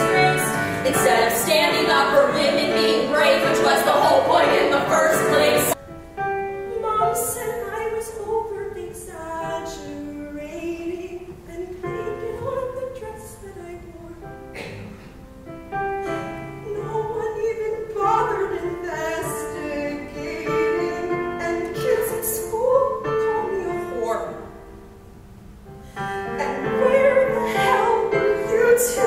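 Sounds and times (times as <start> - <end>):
women singing show tune: 0.0 - 5.8
keyboard accompaniment: 0.0 - 29.0.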